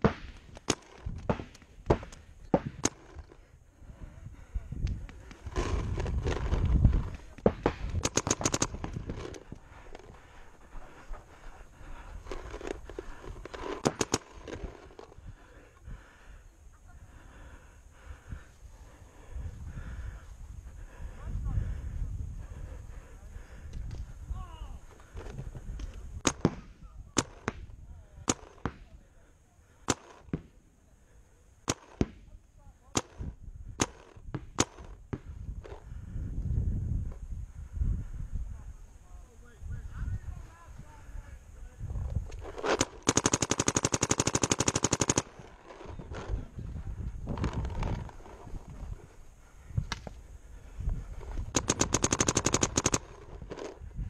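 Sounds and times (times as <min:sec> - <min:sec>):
paintball marker shots: 0:00.0 - 0:03.4, 0:04.9 - 0:10.1, 0:12.3 - 0:15.2, 0:26.2 - 0:29.0, 0:29.8 - 0:30.6, 0:31.6 - 0:35.8, 0:42.3 - 0:46.4, 0:51.2 - 0:53.8
paintball markers popping: 0:04.8 - 0:10.2, 0:12.0 - 0:15.2, 0:51.2 - 0:53.8.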